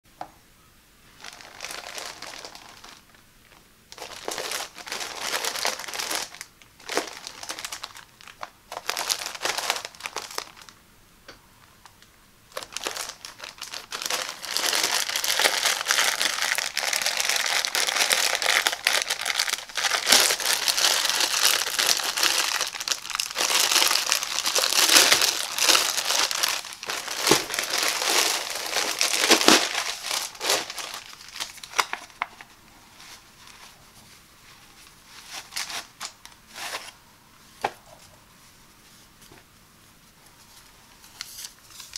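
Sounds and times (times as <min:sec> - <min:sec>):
plastic bag crinkling: 0:01.2 - 0:10.8, 0:11.9 - 0:33.8.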